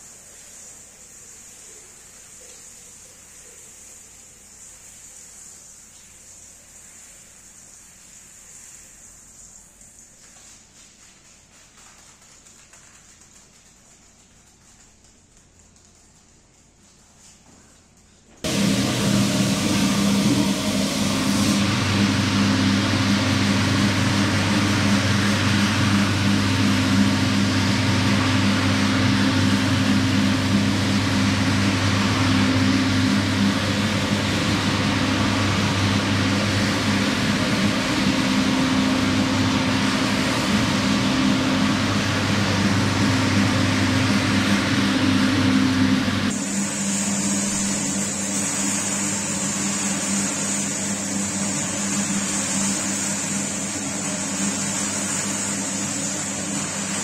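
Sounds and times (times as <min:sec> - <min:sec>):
cleaning machine motor hum: 0:18.3 - 0:57.0
loud dense hiss: 0:18.4 - 0:57.0.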